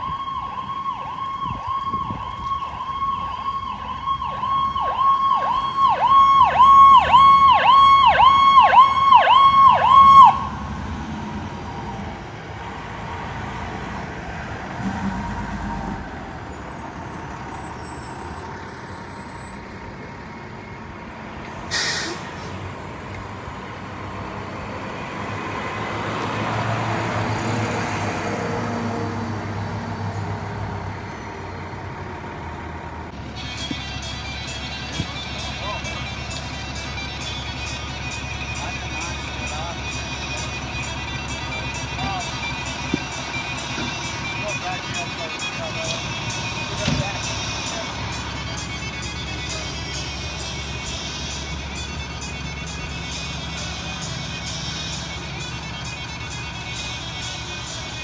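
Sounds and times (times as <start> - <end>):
electronic siren yelping: 0.0 - 10.6
deep truck engine: 0.0 - 58.0
diesel engines passing: 0.0 - 58.0
air brake hiss: 21.5 - 22.7.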